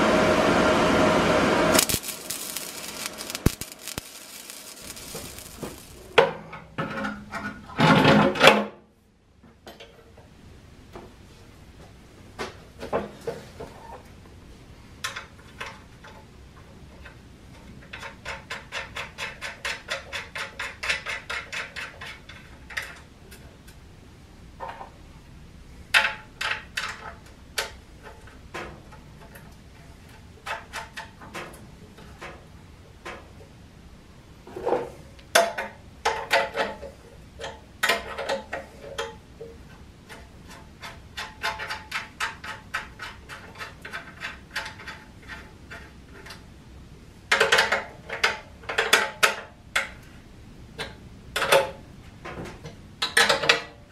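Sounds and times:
ratchet wrench clicking: 1.8 - 6.1.

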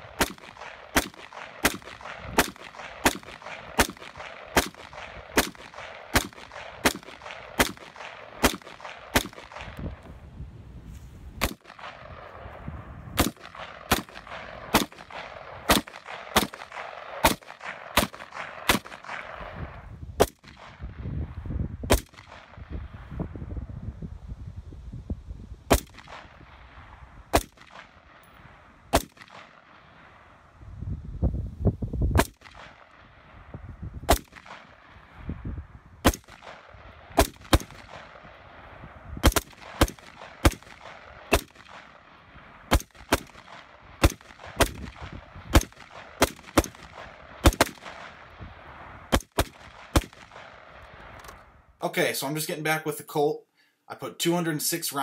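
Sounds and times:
rifle shots: 0.0 - 9.8, 11.4 - 12.5, 13.2 - 21.0, 21.9 - 22.7, 25.7 - 30.3, 32.2 - 35.1, 36.0 - 51.4.

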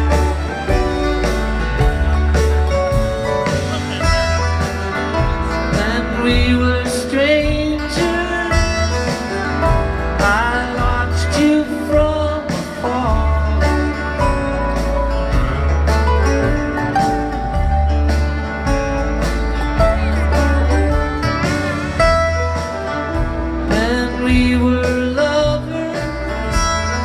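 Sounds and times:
live bluegrass band playing: 0.0 - 27.0.

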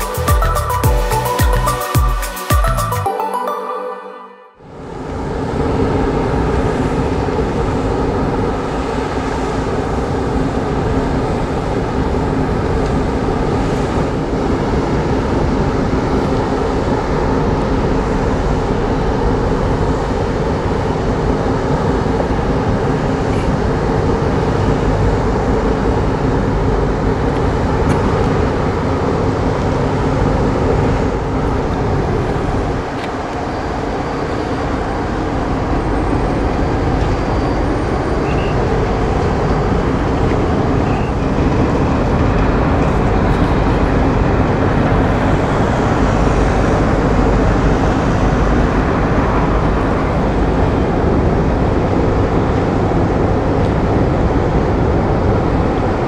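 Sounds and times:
ferry engines droning: 0.0 - 56.0
rushing noise: 4.3 - 56.0.

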